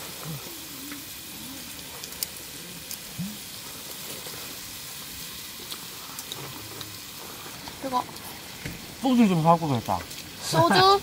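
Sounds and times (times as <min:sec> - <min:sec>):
meat sizzling on a grill: 0:00.0 - 0:11.0
fat spitting pops: 0:02.0 - 0:03.5.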